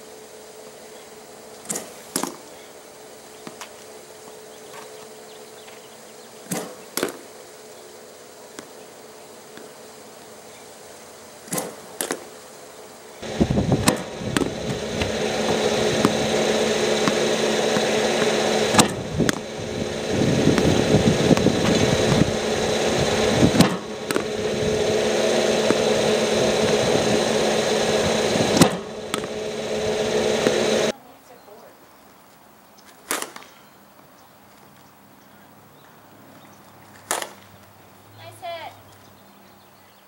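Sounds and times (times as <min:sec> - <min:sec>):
loud steady mechanical hum: 0:00.0 - 0:31.4, 0:38.2 - 0:38.7.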